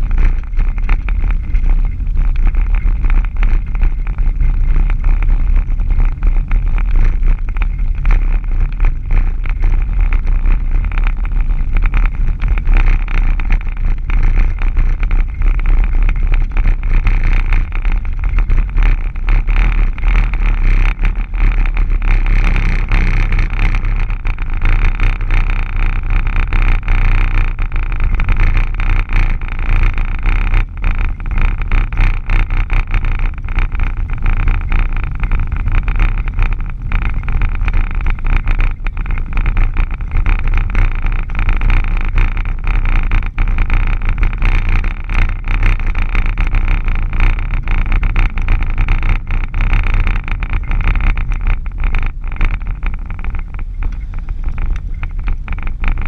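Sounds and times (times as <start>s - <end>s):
tyres on loose gravel: 0.0s - 32.5s
small clicks and rattles: 0.0s - 56.0s
vehicle engine rumble: 0.0s - 56.0s.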